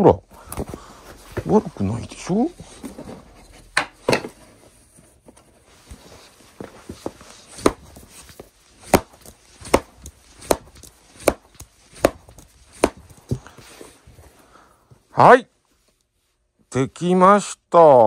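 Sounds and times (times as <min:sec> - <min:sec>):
baseball slapping into leather mitt: 0:07.4 - 0:13.5.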